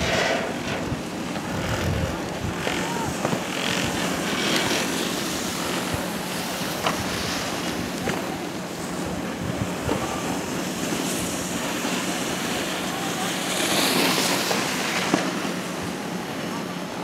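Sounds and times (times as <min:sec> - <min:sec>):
wind on microphone: 0:00.0 - 0:04.7
chairlift rushing noise: 0:00.0 - 0:17.0.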